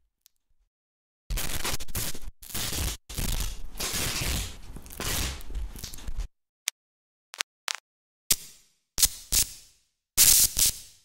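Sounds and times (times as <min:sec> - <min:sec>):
distorted tape tearing crackle: 0:01.3 - 0:06.3.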